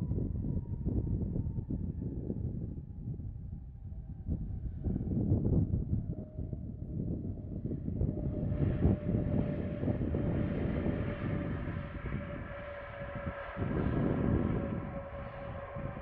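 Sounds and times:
low rumble: 0:00.0 - 0:16.0
wind buffeting microphone: 0:00.0 - 0:16.0
jet engines whining: 0:07.5 - 0:16.0.

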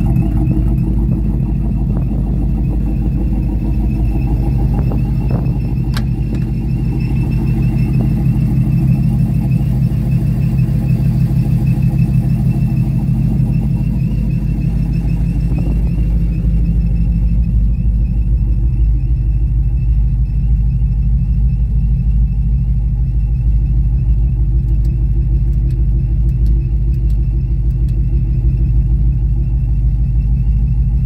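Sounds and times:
car engine idling: 0:00.0 - 0:31.0
high whine: 0:00.0 - 0:31.0.

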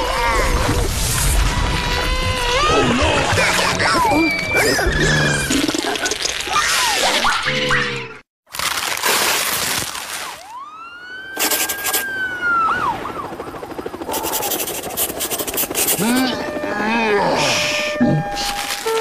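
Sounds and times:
sliding whistle: 0:11.4 - 0:12.1.

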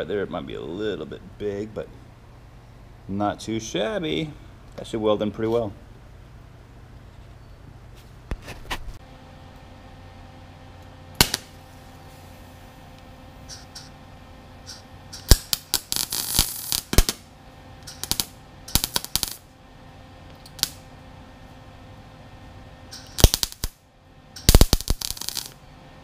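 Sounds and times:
steady low hum: 0:00.0 - 0:26.0
welding arc crackle: 0:11.2 - 0:12.8, 0:13.4 - 0:13.9, 0:14.6 - 0:19.6, 0:20.4 - 0:20.9, 0:22.9 - 0:23.8, 0:24.4 - 0:25.6.

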